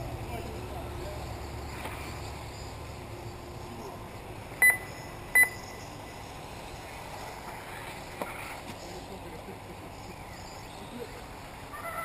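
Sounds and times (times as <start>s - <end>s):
steady background noise: 0.0s - 12.0s
short electronic beeps: 4.6s - 5.9s.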